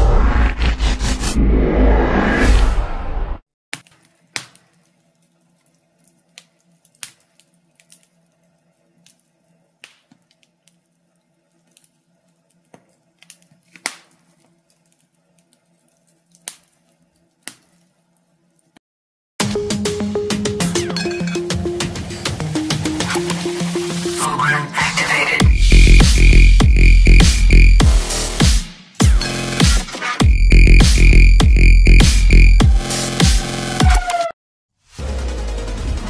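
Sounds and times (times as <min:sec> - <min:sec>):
loud rushing intro sound: 0:00.0 - 0:03.4
fire crackling: 0:03.8 - 0:18.8.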